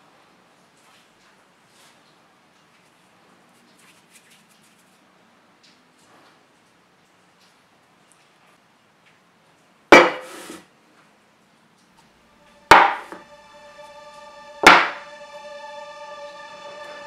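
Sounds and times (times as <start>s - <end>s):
tin cans knocking on a table: 10.0s - 10.3s
background music with held notes: 12.3s - 17.0s.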